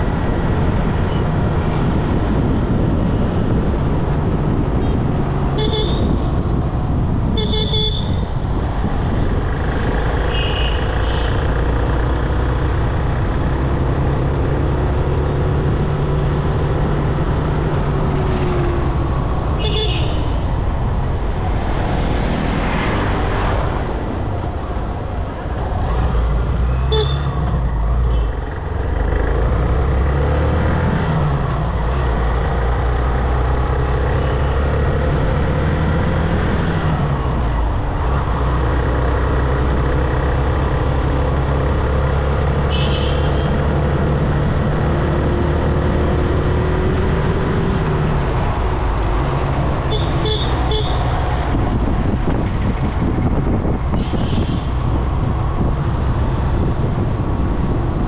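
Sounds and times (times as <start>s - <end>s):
car engine and road noise: 0.0s - 58.0s
vehicle horn toots: 42.7s - 43.5s, 49.9s - 51.0s.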